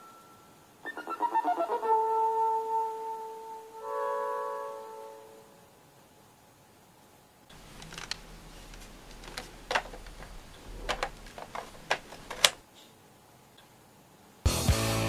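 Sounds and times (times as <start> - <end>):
faint hiss: 0.0 - 1.0, 1.7 - 14.5
clicks of small objects handled: 7.5 - 12.6
low hum: 7.5 - 12.6.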